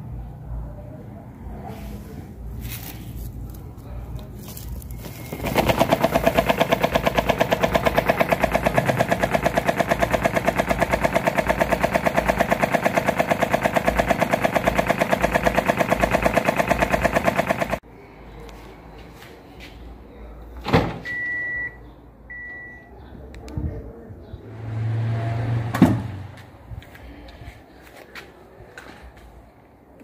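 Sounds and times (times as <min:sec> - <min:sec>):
electric fan rattling: 0:02.5 - 0:17.8.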